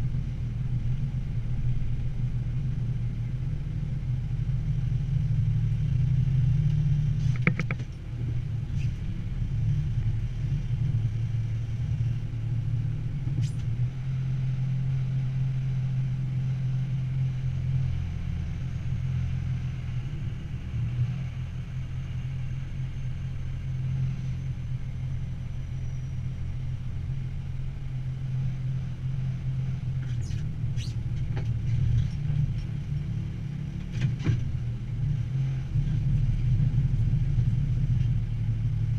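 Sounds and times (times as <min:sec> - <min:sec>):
truck engine low drone: 0:00.0 - 0:38.9
faint clicks in cab: 0:06.7 - 0:08.1, 0:30.0 - 0:32.8.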